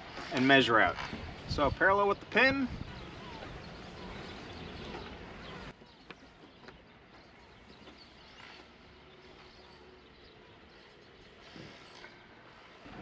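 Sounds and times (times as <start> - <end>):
wind rumble on microphone: 1.0 - 5.7.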